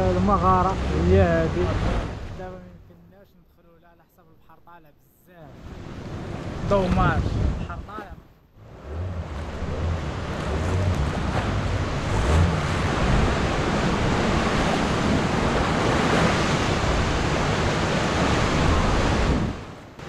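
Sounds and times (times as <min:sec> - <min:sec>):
waves surging and breaking: 0:00.0 - 0:02.8, 0:05.5 - 0:20.0
wind buffeting microphone: 0:05.6 - 0:08.0, 0:08.7 - 0:19.8.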